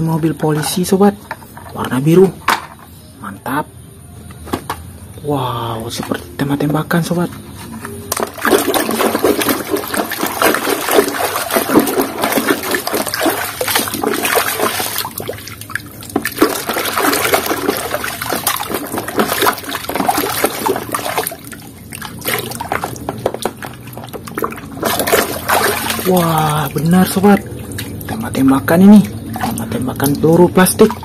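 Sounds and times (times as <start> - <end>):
water sloshing in a basin: 5.2 - 31.0
hand scrubbing toy underwater: 8.4 - 31.0.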